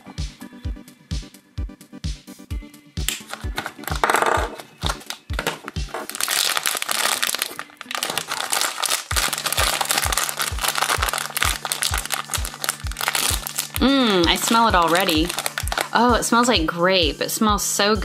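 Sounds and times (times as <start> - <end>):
background music with steady beat: 0.0 - 18.0
plastic wrapper crinkling: 3.2 - 16.0.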